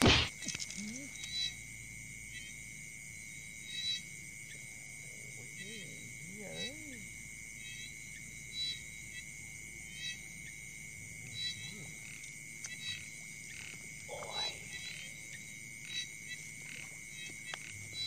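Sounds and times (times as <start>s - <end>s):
frog calling: 0.0s - 1.7s, 3.4s - 10.6s, 11.3s - 18.0s
insects trilling: 0.0s - 18.0s.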